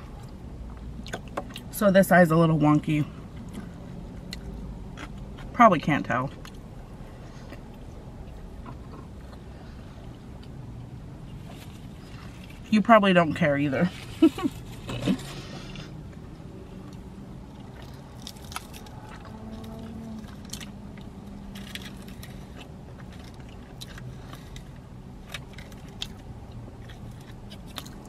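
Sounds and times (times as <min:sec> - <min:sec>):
person chewing fries: 0:00.1 - 0:01.7, 0:03.4 - 0:05.5, 0:14.6 - 0:28.0.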